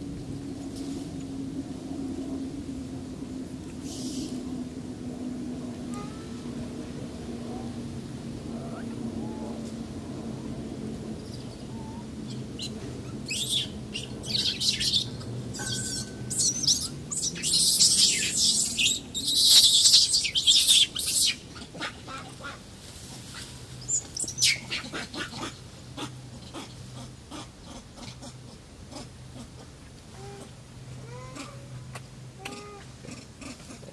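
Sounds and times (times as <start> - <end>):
monkey squealing: 13.3 - 21.4
monkey screaming: 13.3 - 22.4.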